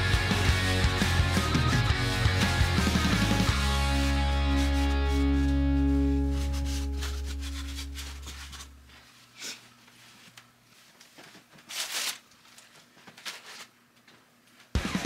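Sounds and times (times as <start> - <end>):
background music chord: 0.0 - 8.0.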